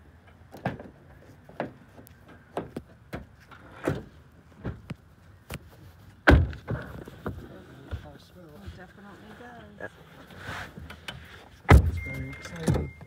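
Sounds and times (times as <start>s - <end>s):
car door thump: 11.7s - 12.0s.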